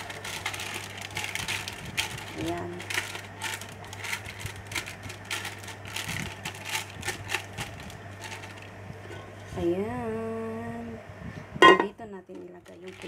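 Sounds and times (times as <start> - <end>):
baking paper crinkling: 0.0 - 8.8, 12.3 - 13.0
low steady hum: 0.0 - 13.0.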